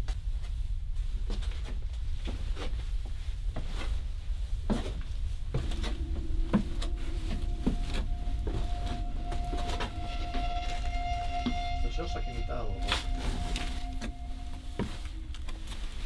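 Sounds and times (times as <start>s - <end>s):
steady low hum: 0.2s - 16.0s
low handling rumble: 4.0s - 16.0s
footsteps on creaking floorboards: 5.6s - 12.2s.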